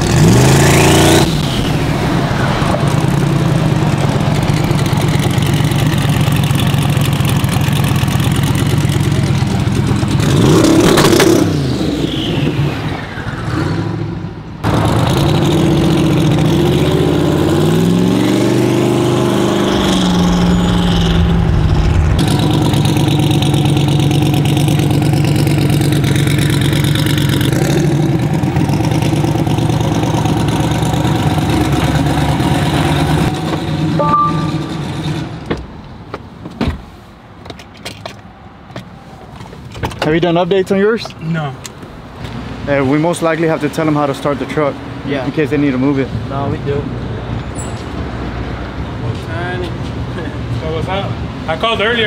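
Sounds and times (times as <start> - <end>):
truck engine revving: 0.0 - 35.5.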